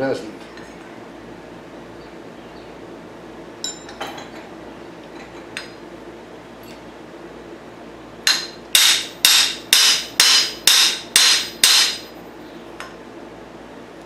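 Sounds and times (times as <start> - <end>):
hammer striking steel: 8.3 - 12.1.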